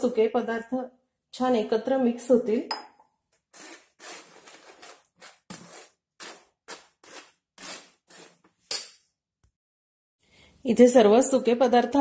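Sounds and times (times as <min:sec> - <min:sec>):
spoon scraping through sieve: 0:03.5 - 0:08.6.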